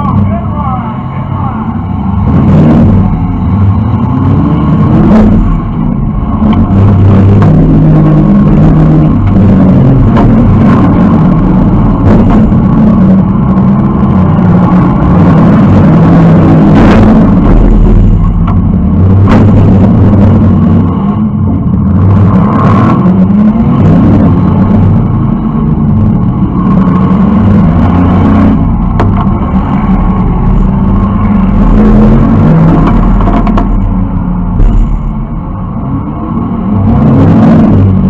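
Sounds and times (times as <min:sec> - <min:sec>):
car engine revving: 0:00.0 - 0:38.0.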